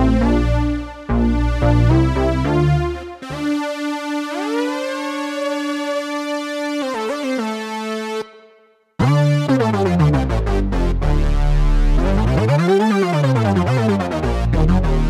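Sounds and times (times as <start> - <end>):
deep synth bass notes: 0.0 - 5.8, 9.0 - 15.0
synthesizer lead gliding: 0.0 - 8.4, 9.0 - 15.0.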